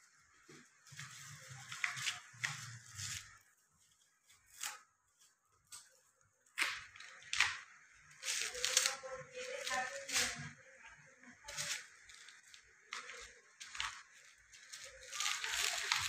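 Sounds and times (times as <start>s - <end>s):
plastic packaging crinkling: 6.6s - 10.6s, 11.5s - 16.0s.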